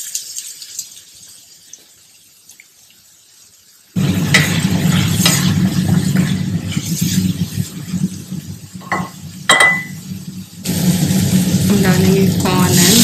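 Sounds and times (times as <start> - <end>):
food frying and scraped in pan: 4.0 - 13.0.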